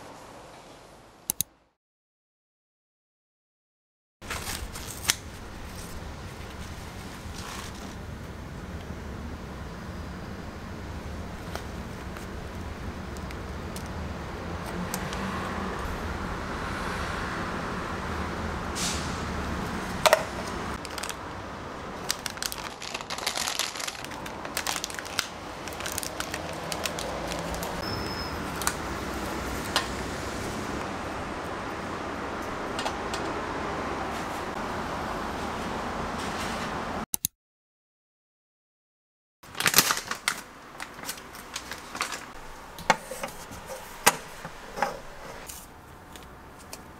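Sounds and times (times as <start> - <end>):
crackly rustling: 4.2 - 8.3, 20.8 - 27.8, 39.5 - 46.9
plastic packaging crinkling: 20.8 - 21.3, 21.9 - 27.8, 39.5 - 42.5.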